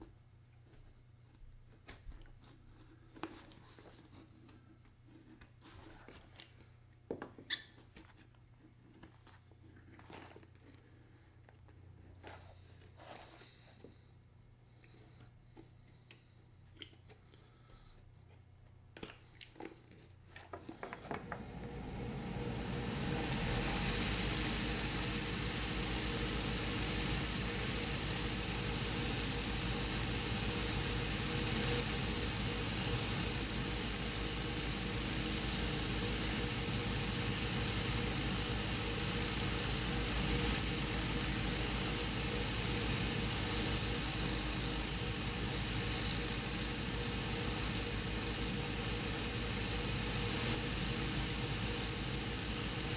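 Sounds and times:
sanding wheel machine running: 0:21.2 - 0:52.9.

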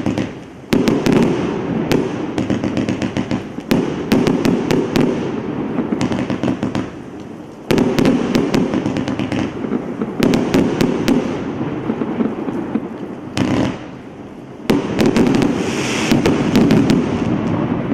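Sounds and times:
firework crackling: 0:00.0 - 0:17.9
firework shots and bursts: 0:00.0 - 0:17.9.

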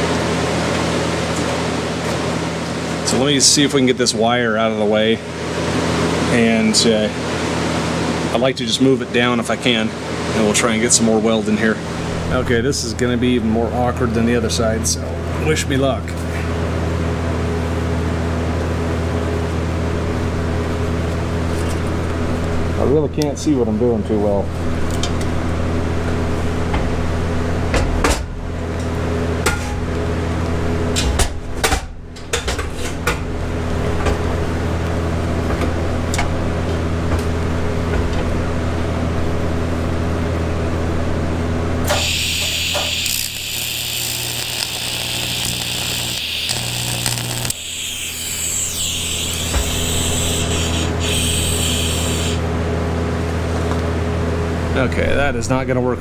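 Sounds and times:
welder humming: 0:41.6 - 0:52.7
welding arc buzzing and hissing: 0:41.8 - 0:52.7.

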